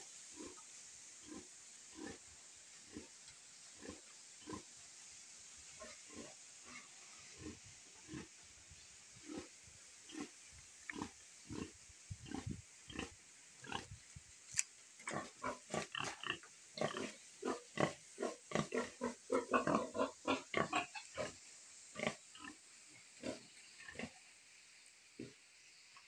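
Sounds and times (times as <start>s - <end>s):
pigs grunting: 15.1s - 21.4s.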